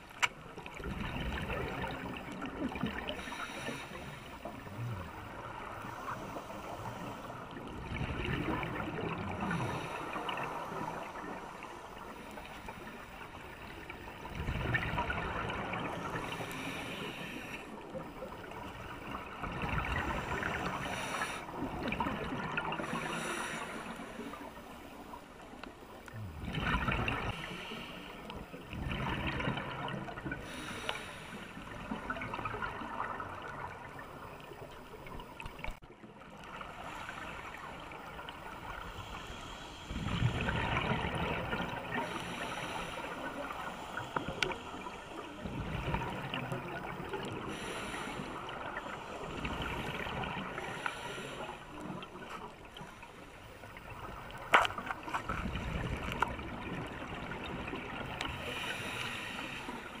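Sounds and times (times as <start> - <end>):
underwater bubbles gurgling: 0.0 - 60.0
watery hiss: 1.7 - 14.3, 15.4 - 22.0, 22.6 - 25.2, 30.2 - 32.3, 38.6 - 56.2, 57.9 - 60.0.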